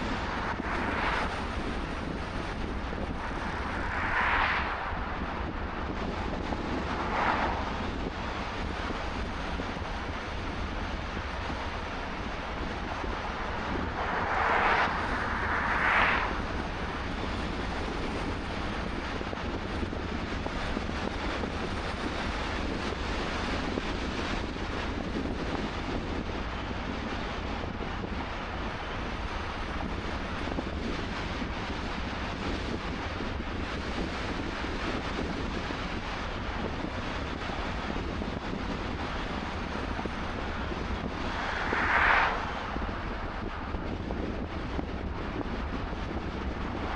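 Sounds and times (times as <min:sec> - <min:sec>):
cars whooshing past: 0:00.0 - 0:08.6, 0:12.0 - 0:18.0, 0:40.2 - 0:43.8
wind and tyre noise: 0:00.0 - 0:46.9.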